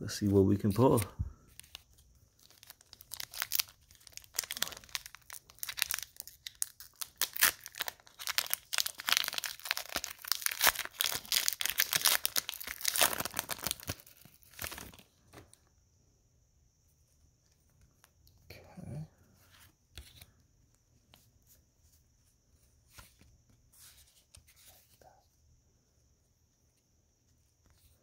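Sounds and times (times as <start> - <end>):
foil wrapper crinkling and tearing: 0.6 - 15.0.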